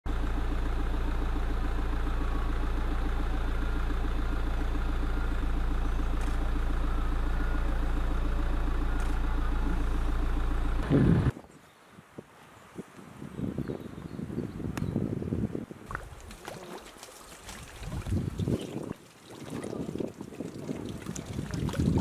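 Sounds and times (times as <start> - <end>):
fluttering mechanical hum: 0.1 - 11.3.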